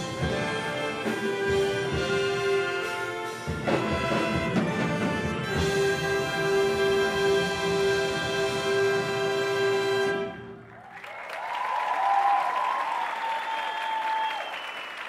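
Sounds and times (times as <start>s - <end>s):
audience applause and cheering: 9.8s - 15.0s.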